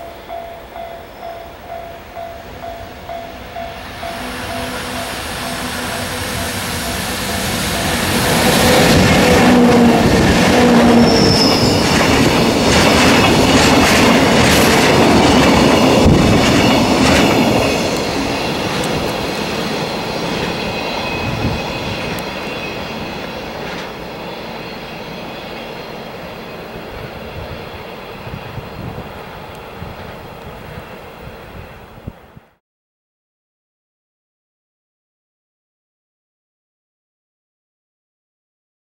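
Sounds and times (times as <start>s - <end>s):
high wheel squeal: 0.0s - 29.8s
train wheels rumbling and clattering: 2.2s - 25.8s.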